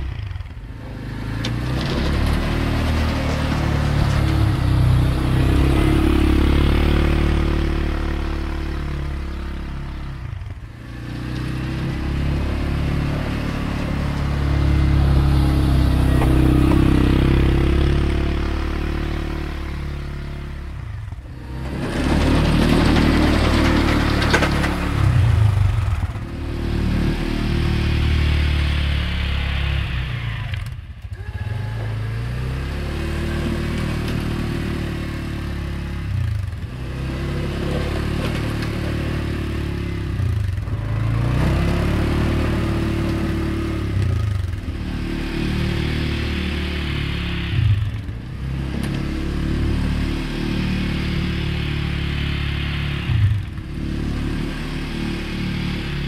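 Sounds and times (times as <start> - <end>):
quad bike engine revving: 0.0 - 56.0.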